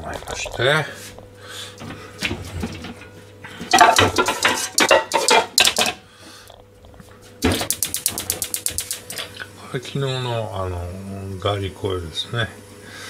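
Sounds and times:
metal pans clattering: 2.3s - 6.0s.

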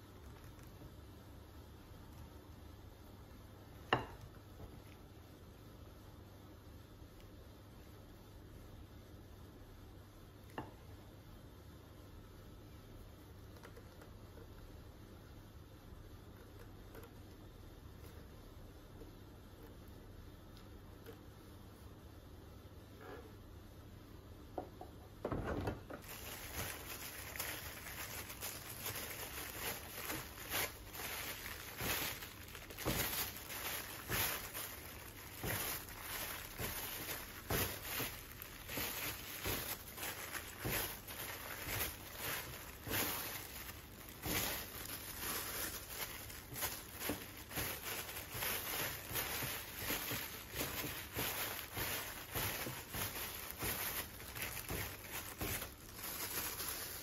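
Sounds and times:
plastic gloves crinkling: 0.0s - 5.1s, 25.9s - 57.0s
hands kneading sticky mixture: 26.0s - 57.0s.

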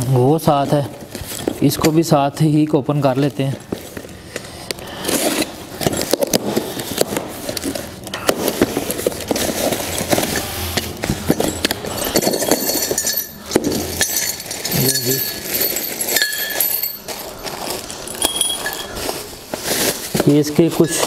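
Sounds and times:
cardboard and tape crackling: 3.0s - 12.0s, 17.0s - 21.0s.

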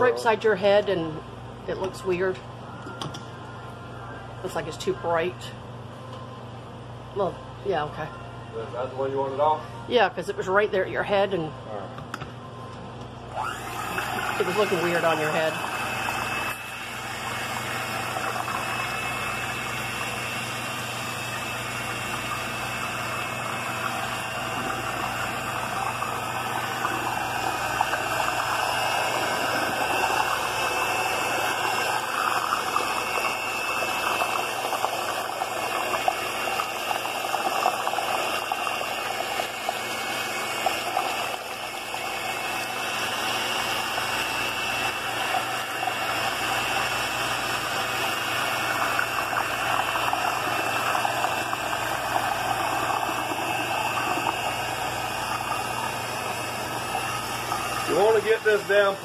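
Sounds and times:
electric hand mixer running: 13.3s - 59.0s.

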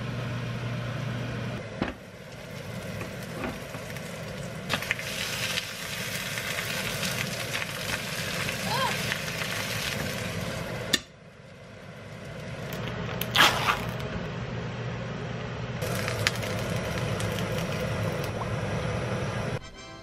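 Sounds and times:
fish sizzling in a grill pan: 2.4s - 10.6s, 15.8s - 18.0s.

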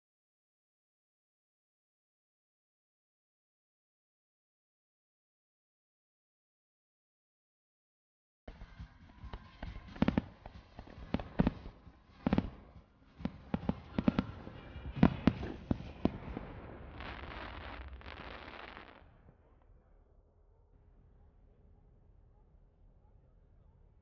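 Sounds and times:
fireworks bangs: 9.7s - 19.4s
dense hissing of fireworks: 9.8s - 19.2s.

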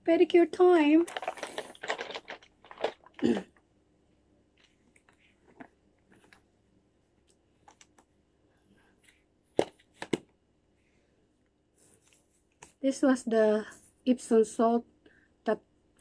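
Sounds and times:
small clicks and rustles: 1.0s - 3.6s, 4.5s - 6.5s, 7.2s - 8.1s.

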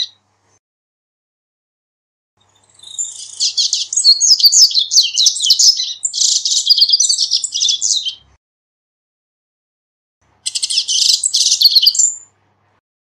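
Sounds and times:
bird twittering song: 0.0s - 0.2s, 2.4s - 8.3s, 10.4s - 12.3s.

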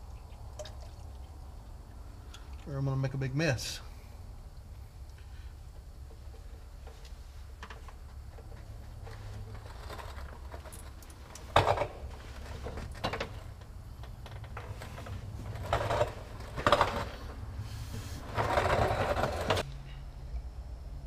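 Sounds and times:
low steady hum: 0.0s - 21.0s
handling knocks and scrapes: 6.0s - 19.7s.

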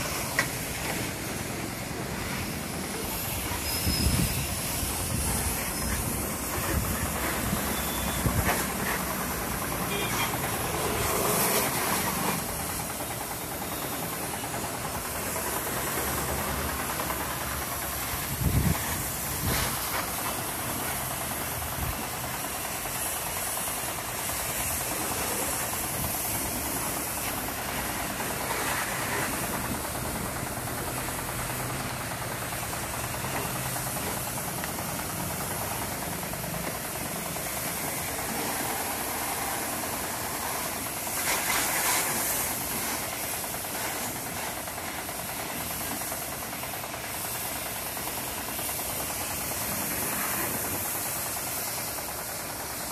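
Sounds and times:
pressure washer spraying water: 0.0s - 52.9s.

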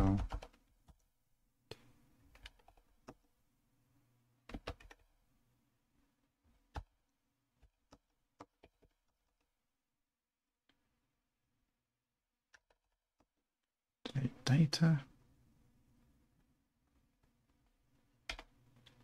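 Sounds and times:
computer keyboard key clicks: 18.3s - 18.5s.

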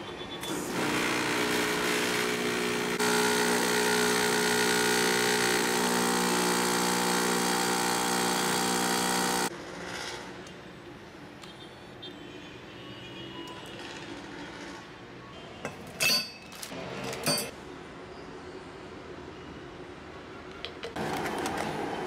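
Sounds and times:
espresso machine pump humming: 0.4s - 9.5s.

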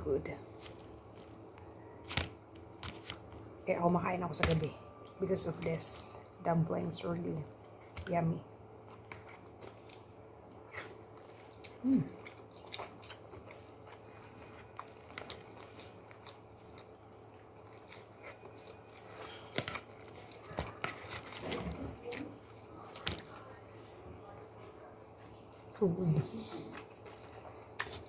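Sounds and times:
person biting and chewing: 8.8s - 23.2s, 26.7s - 28.0s.

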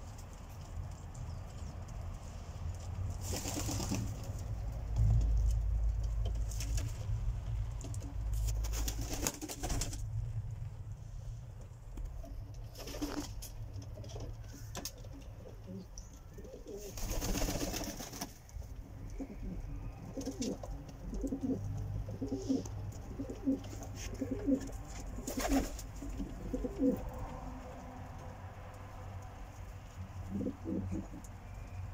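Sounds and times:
pigeons cooing: 14.1s - 18.0s, 18.8s - 28.0s, 30.0s - 31.8s.

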